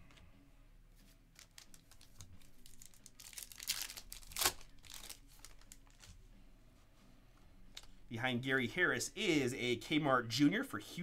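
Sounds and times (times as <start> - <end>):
trading cards being handled: 0.9 - 6.3, 7.6 - 8.1
foil wrapper crinkling and tearing: 1.4 - 6.1.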